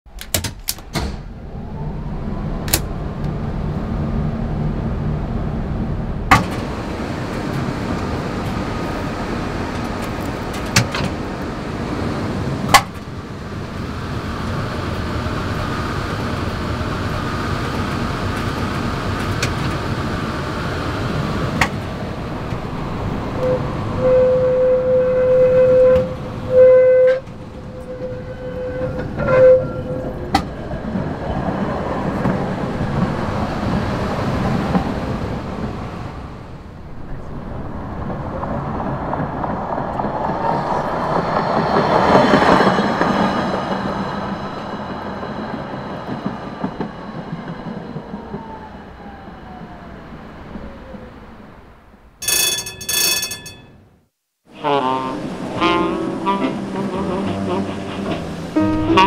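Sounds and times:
tram rumbling: 0.1 - 59.0
held tone: 52.2 - 53.8.

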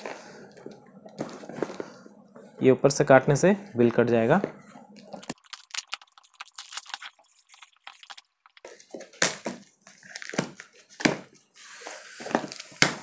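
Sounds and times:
packing tape ripping: 5.2 - 11.2, 12.2 - 13.0.

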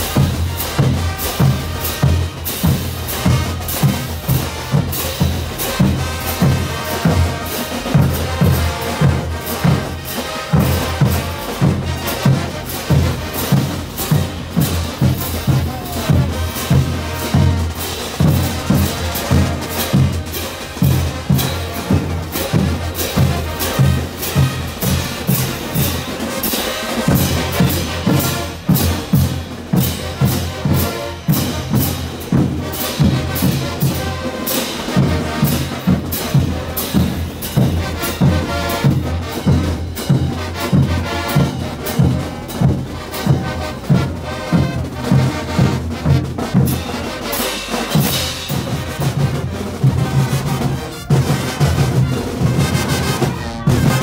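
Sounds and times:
brass band playing: 0.0 - 54.0
snare drums: 0.0 - 54.0
bass drum beat: 10.6 - 26.0.

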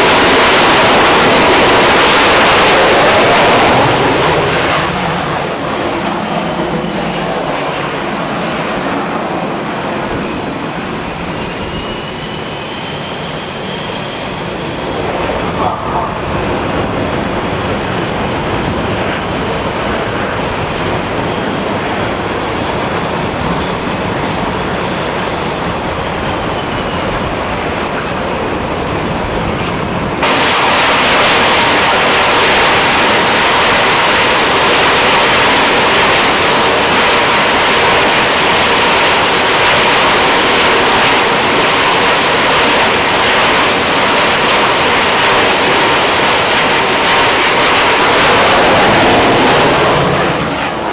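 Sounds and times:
jet engines rushing: 0.0 - 50.9
steady high whine: 0.0 - 50.9.

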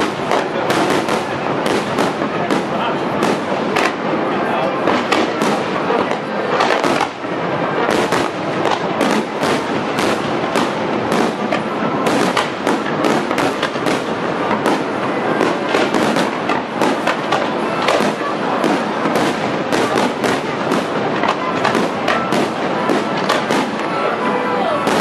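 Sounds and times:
fireworks bursts and crackles: 0.0 - 25.0.

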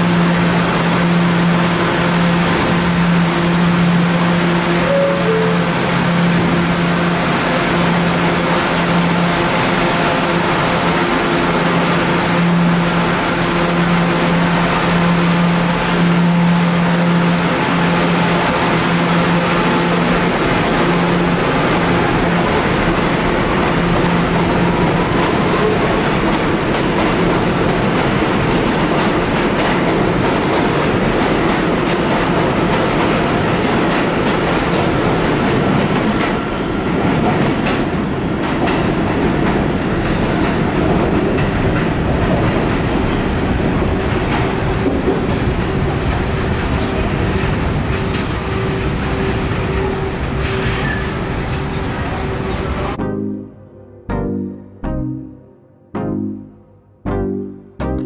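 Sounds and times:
steady train tone: 0.0 - 38.4, 41.6 - 57.0
train rumble: 0.0 - 53.0
train wheels clicking over rail joints: 19.6 - 43.4.

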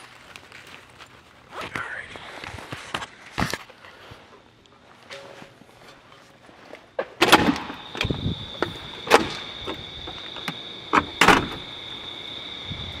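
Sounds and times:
door banging shut: 7.2 - 11.8
door push bar clunking: 7.3 - 11.7.

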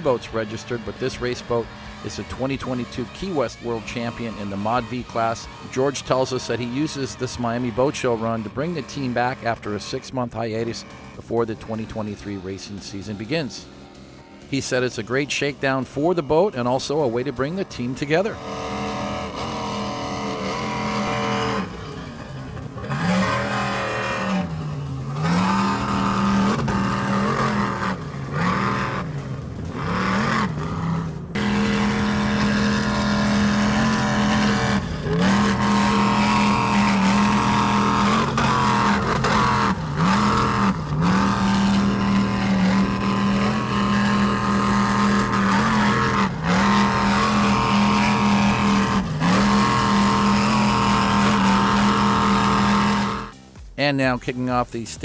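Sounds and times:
race boat engines at high speed: 0.0 - 55.0.

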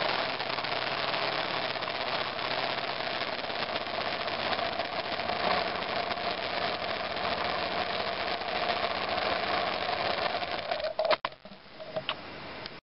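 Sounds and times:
motorcycle engine idling: 0.0 - 10.7.

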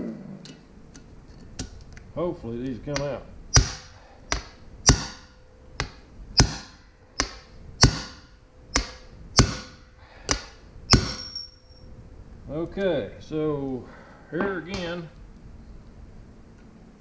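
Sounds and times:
hammer striking metal impact driver: 3.0 - 11.6.

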